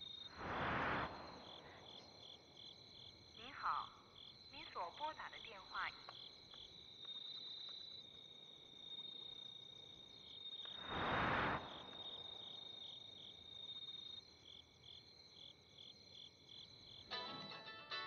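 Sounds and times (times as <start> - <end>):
crickets chirping: 0.0 - 18.0
rush of noise: 0.3 - 1.9, 10.8 - 12.2.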